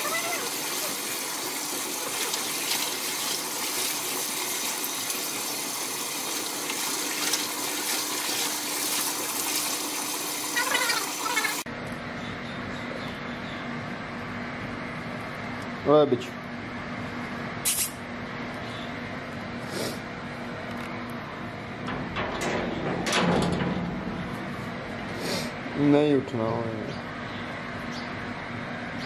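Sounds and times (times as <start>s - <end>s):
water running and splashing: 0.0s - 11.7s.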